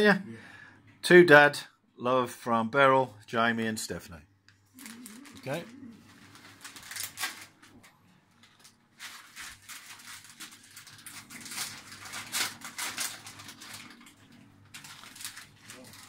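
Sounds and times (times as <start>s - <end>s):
wrapping paper tearing and crinkling: 4.7s - 16.0s.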